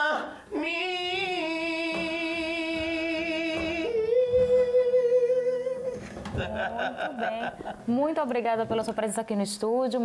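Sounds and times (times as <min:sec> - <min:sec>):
man singing with vibrato: 0:00.0 - 0:07.1.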